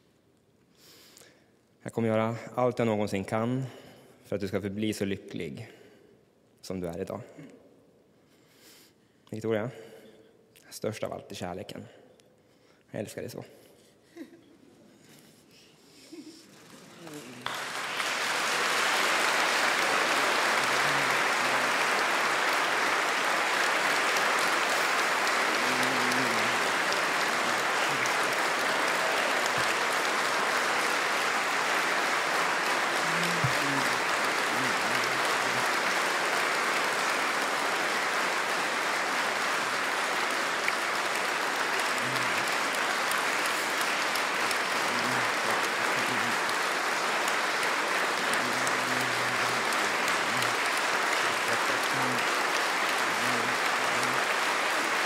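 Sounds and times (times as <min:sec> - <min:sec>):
large audience applauding: 0:16.2 - 0:55.0.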